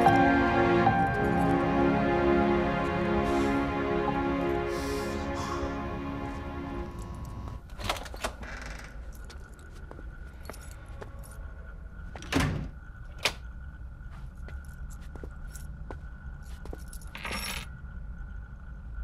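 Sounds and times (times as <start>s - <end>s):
soft background music: 0.0s - 8.0s
keys jangling: 16.5s - 17.7s.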